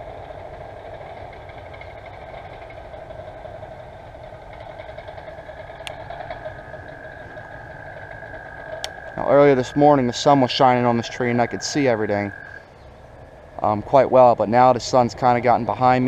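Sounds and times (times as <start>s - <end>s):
low rumble: 0.0s - 16.0s
steady mechanical hum: 0.0s - 16.0s.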